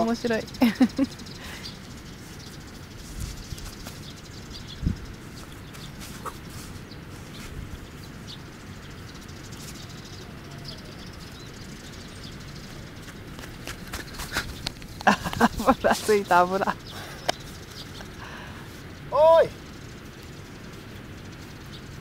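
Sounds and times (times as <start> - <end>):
faint bird chirps: 0.0 - 13.3
wind rumble on microphone: 1.9 - 18.1.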